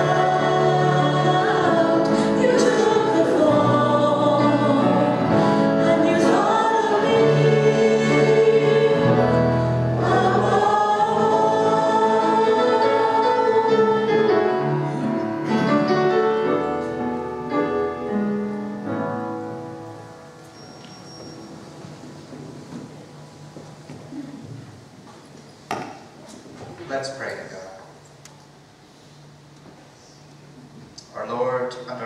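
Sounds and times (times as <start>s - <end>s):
group singing with band: 0.0s - 14.2s.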